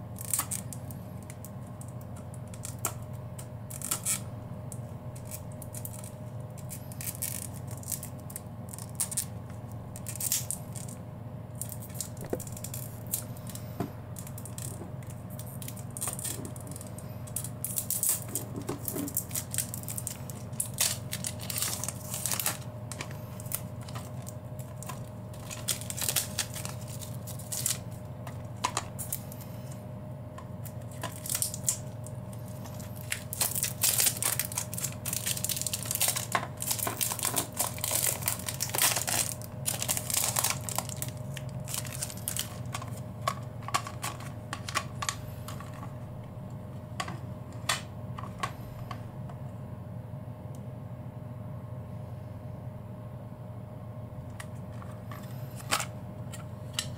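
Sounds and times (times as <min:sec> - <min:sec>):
cellophane wrapper tearing and crinkling: 0:00.2 - 0:04.3, 0:05.1 - 0:11.0, 0:11.6 - 0:13.6, 0:14.2 - 0:29.3, 0:30.6 - 0:45.9.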